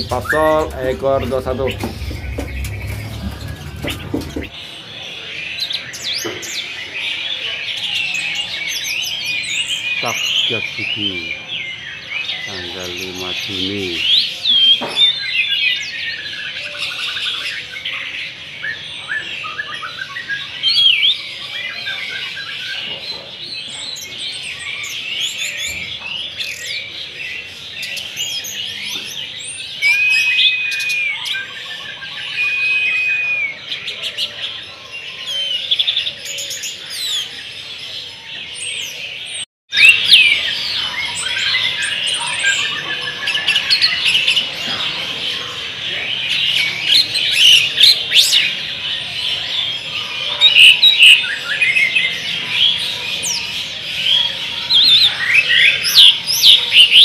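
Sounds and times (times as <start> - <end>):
songbirds chirping and singing: 0.0 - 57.0
long whistled notes: 32.2 - 33.6.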